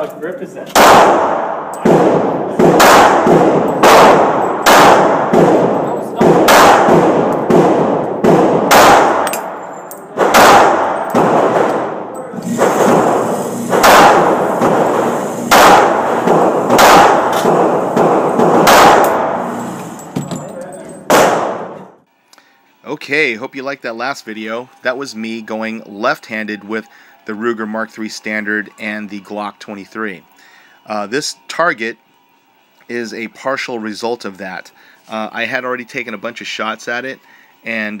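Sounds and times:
handgun shots echoing: 0.7s - 20.4s, 21.1s - 21.9s.

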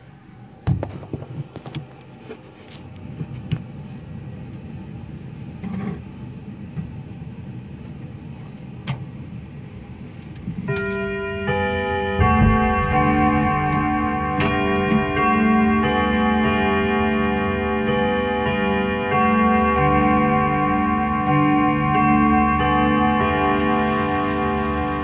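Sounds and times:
clock chime rods ringing melody: 10.7s - 25.0s
knocks and rattling inside clock case: 12.1s - 16.8s.

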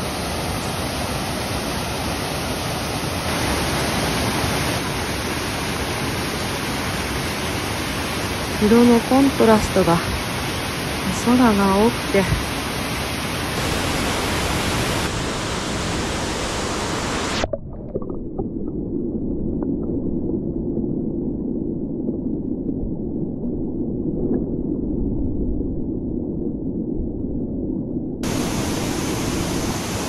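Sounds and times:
waterfall splashing into pool: 0.0s - 9.0s, 12.6s - 17.6s
muffled underwater rumble: 17.2s - 30.0s.

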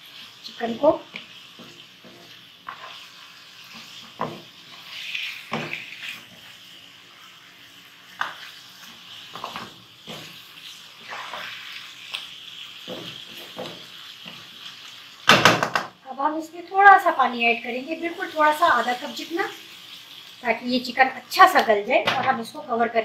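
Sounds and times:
chicken sizzling in hot oil: 0.0s - 23.0s
wooden spatula scraping a pan: 0.7s - 6.7s, 8.1s - 11.8s.

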